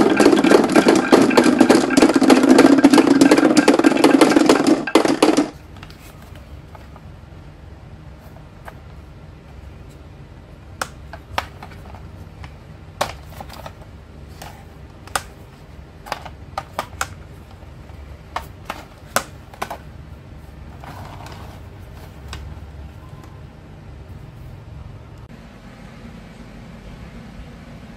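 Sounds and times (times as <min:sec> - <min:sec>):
plastic toy truck clicking: 0:00.0 - 0:05.6, 0:16.0 - 0:17.2
low steady hum: 0:00.0 - 0:27.9.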